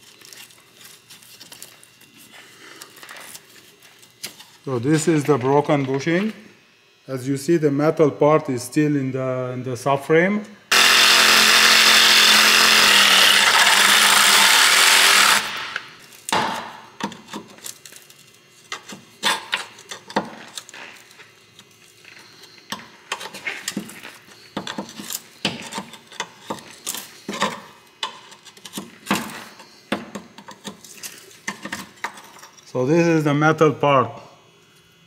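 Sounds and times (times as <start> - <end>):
reciprocating saw cutting metal: 10.7 - 16.0.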